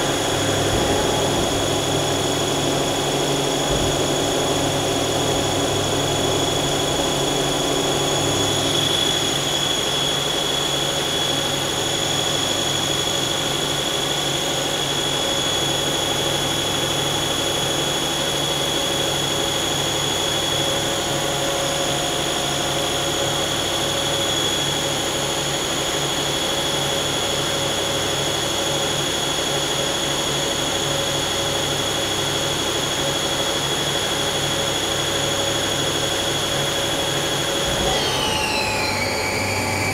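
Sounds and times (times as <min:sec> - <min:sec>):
high whine: 0:00.0 - 0:13.1, 0:36.1 - 0:39.9
lathe machine drone: 0:00.0 - 0:27.5, 0:32.0 - 0:39.9.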